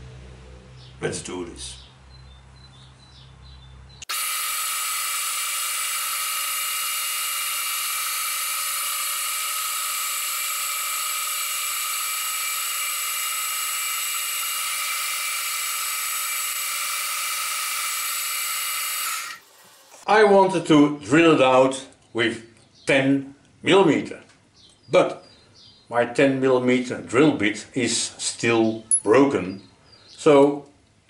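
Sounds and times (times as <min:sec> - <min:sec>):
milling machine spindle whining: 0:04.0 - 0:20.0.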